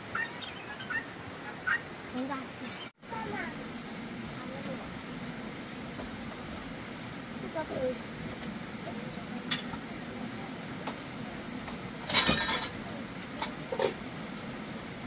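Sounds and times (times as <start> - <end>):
dishes and utensils clinking: 9.4 - 9.8, 12.0 - 12.8.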